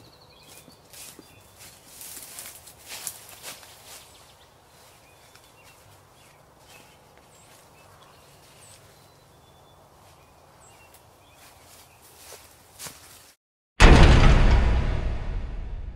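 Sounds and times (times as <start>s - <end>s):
songbirds chirping: 0.0s - 13.2s
low hum: 13.8s - 15.9s.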